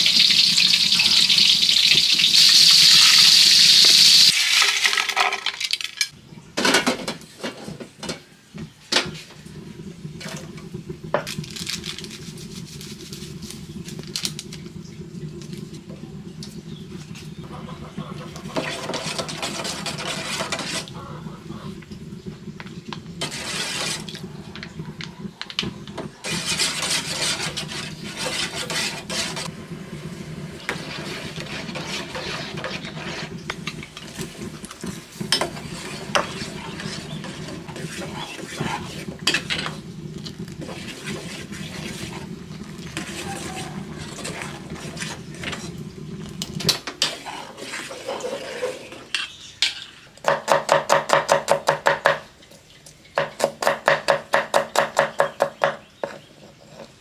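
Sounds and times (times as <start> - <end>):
metal spoon scraping saucepan: 18.2 - 21.0, 23.2 - 24.2, 26.2 - 29.5, 30.7 - 34.3, 35.2 - 39.8, 40.6 - 45.8, 46.8 - 50.2.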